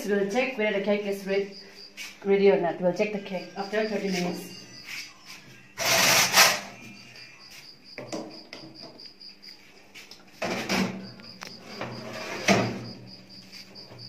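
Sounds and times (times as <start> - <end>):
cricket chirping: 0.0 - 14.0
cake tin scraping on oven rack: 11.6 - 12.8.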